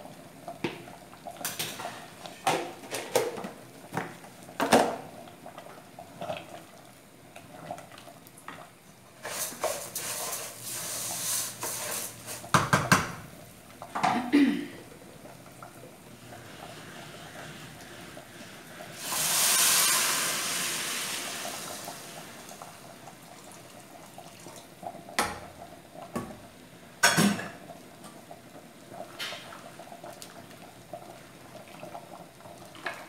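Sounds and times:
pots and lids set down: 0:01.4 - 0:03.6, 0:04.6 - 0:05.0, 0:27.0 - 0:27.6
steady hiss: 0:09.2 - 0:12.6, 0:16.1 - 0:23.3
wooden spoon scraping pot: 0:09.2 - 0:12.6.

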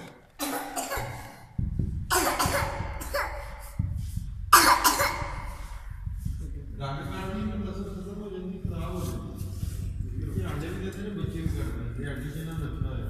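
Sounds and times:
person coughing: 0:00.4 - 0:03.9, 0:04.5 - 0:05.7.

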